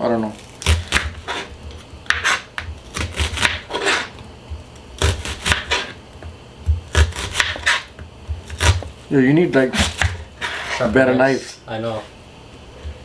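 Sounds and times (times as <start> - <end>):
knife slicing onion: 0.6 - 8.9, 9.5 - 11.0.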